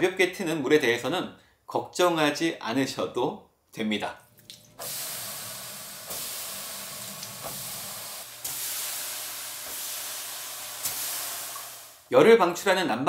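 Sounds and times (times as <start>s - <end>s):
shower water spraying: 4.4s - 12.1s.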